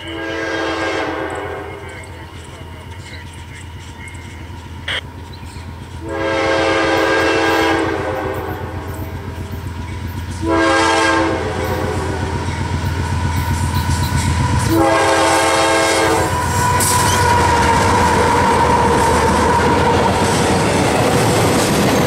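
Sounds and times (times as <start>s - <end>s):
train horn blasts: 0.0s - 2.0s, 6.0s - 9.1s, 10.3s - 12.6s, 13.4s - 20.1s
steel wheels rolling on rails: 0.0s - 10.6s, 11.2s - 22.0s
diesel locomotive engine rumble: 0.0s - 22.0s
high wheel squeal: 16.2s - 20.2s.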